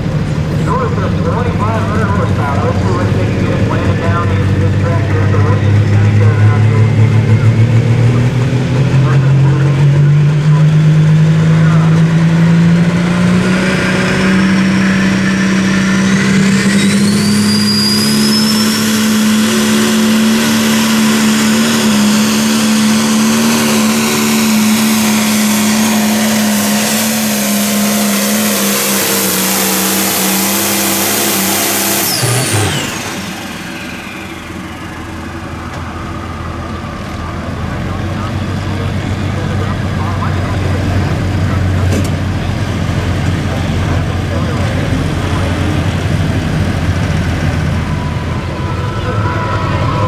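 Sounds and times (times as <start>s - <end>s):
diesel engine at full throttle: 0.0s - 50.0s
turbo whine: 11.4s - 50.0s.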